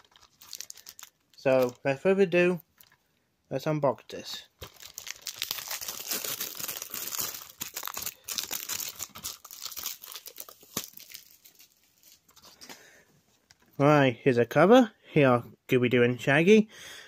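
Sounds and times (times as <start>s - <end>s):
plastic shrink-wrap crinkling: 0.0s - 1.9s, 4.6s - 12.7s.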